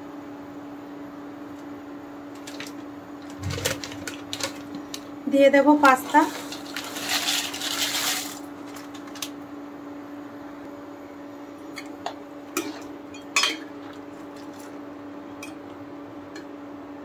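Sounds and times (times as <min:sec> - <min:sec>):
steady low hum: 0:00.0 - 0:17.0
dry pasta pouring into pan: 0:06.3 - 0:09.3.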